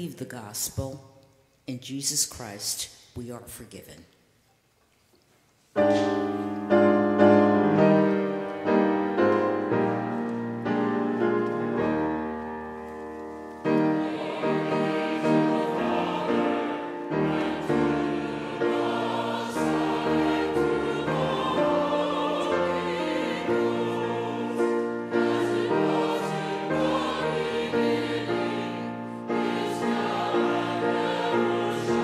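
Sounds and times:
piano chords: 0:05.8 - 0:32.0
voices singing: 0:13.7 - 0:32.0.

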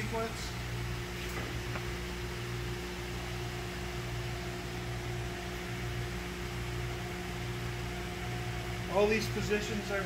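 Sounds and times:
electric motor hum of a lift: 0:00.0 - 0:10.0.

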